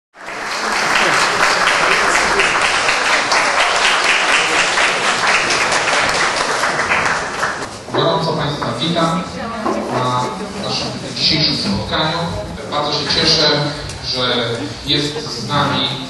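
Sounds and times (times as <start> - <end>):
audience applauding: 0.2 - 7.7.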